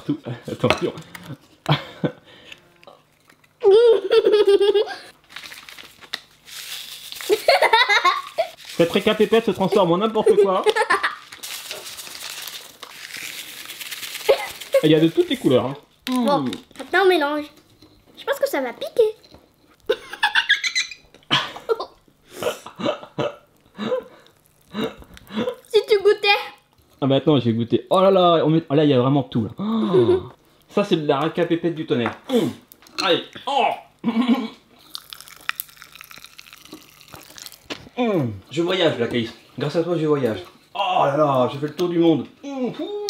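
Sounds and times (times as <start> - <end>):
girl laughing: 3.6 - 5.1, 7.3 - 8.6, 9.7 - 11.3, 14.3 - 14.9, 19.9 - 22.0, 29.7 - 30.4
packet crinkling: 5.2 - 17.0, 24.2 - 26.0, 34.8 - 37.9.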